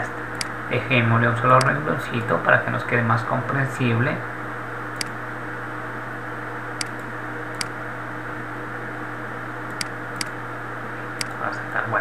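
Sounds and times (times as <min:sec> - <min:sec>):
hiss and electrical hum: 0:00.0 - 0:12.0
computer mouse clicks: 0:00.3 - 0:00.5, 0:05.0 - 0:05.2, 0:06.8 - 0:07.8, 0:09.7 - 0:10.4, 0:11.2 - 0:11.4.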